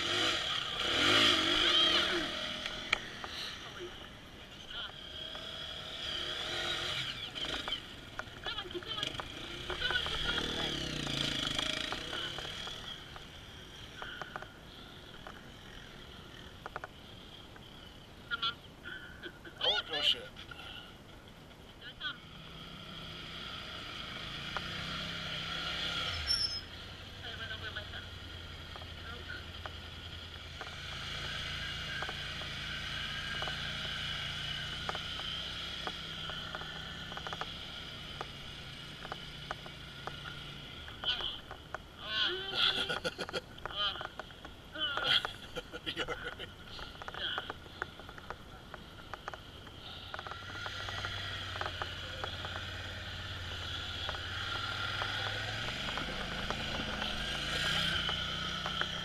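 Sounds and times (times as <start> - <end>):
dirt bike engine: 0.0 - 19.1, 22.0 - 59.0
small clicks and ticks: 7.1 - 18.1, 28.4 - 42.0, 42.6 - 59.0.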